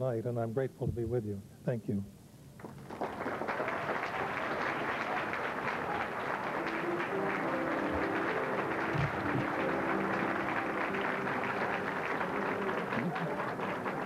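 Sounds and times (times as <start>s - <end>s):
audience applauding: 2.6s - 14.0s
faint held musical notes: 6.4s - 14.0s.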